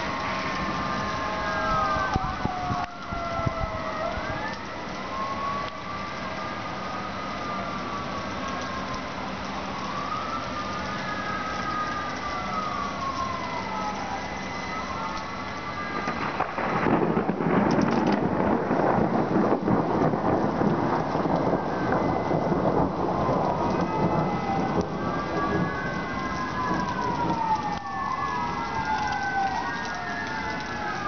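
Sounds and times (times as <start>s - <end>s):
emergency siren wailing: 0.0s - 31.0s
steady rain: 0.0s - 31.0s
thunder rumbling and cracking: 0.0s - 31.0s.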